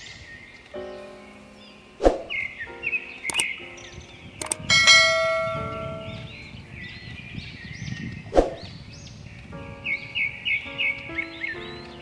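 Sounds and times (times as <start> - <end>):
songbird chirping: 0.0 - 12.0
sharp clicks: 3.3 - 3.6, 4.4 - 5.6
bell-like chime: 4.5 - 6.3.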